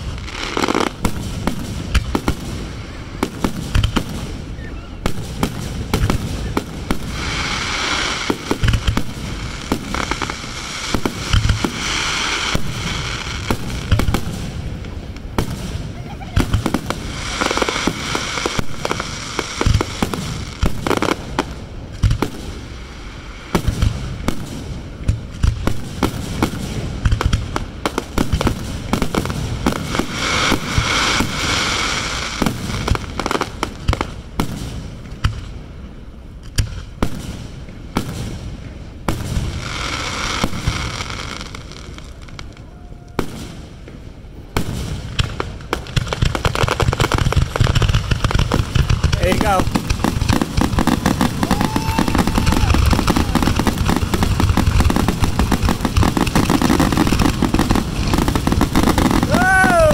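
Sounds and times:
fireworks crackling: 0.0s - 59.9s
firework shells bursting: 44.6s - 59.9s.

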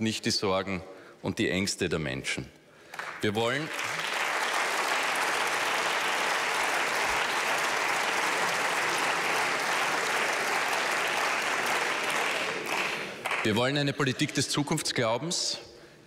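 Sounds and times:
crowd clapping: 2.9s - 14.4s.

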